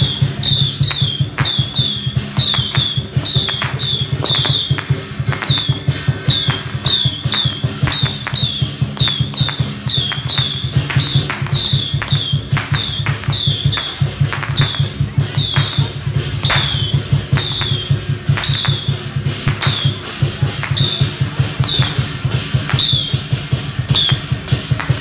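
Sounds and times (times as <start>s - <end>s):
fast dense drumming: 0.0s - 25.0s.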